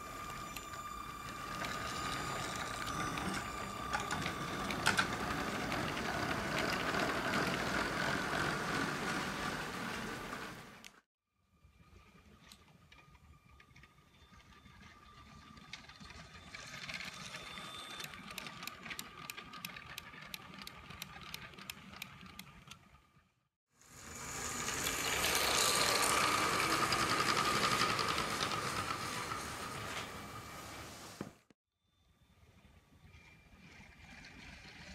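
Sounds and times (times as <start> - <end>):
electric train motor whining: 0.0 - 11.0, 23.9 - 31.0
wheels clicking over track joints: 0.2 - 11.0, 12.3 - 23.0, 24.4 - 30.8
wagons rattling past: 0.6 - 10.8, 12.8 - 22.4, 24.4 - 31.1.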